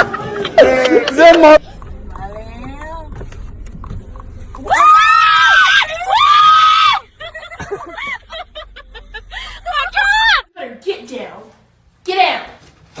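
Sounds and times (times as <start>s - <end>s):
person screaming: 0.6s - 1.4s.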